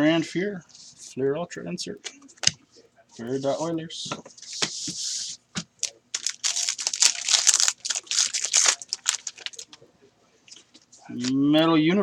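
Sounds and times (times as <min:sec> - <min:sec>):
wrapper torn and crinkled: 0:05.8 - 0:09.8.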